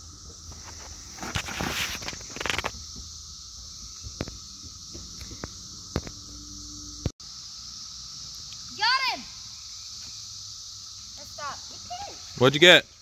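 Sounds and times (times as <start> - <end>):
rustling in dry leaves: 0.0 - 5.7
insects chirring: 0.0 - 13.0.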